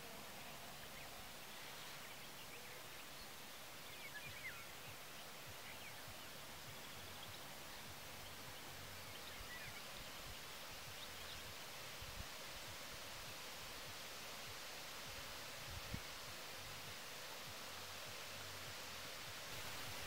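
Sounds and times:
faint bird chirps: 0.0 - 11.7
outdoor hiss: 0.0 - 20.0.

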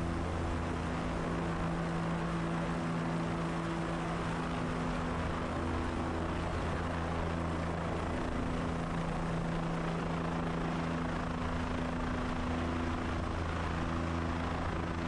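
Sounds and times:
helicopter engine and rotor: 0.0 - 15.0.

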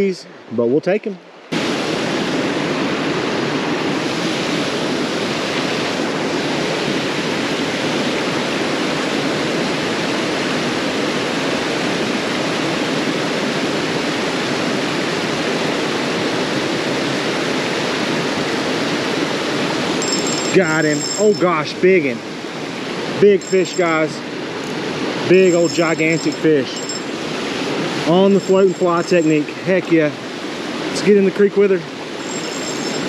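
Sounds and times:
water rushing over weir: 1.5 - 33.0.

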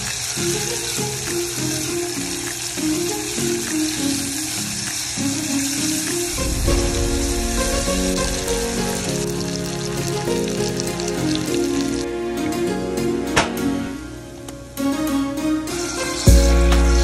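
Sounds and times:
onions sizzling in hot oil: 0.0 - 12.1, 15.6 - 17.0.

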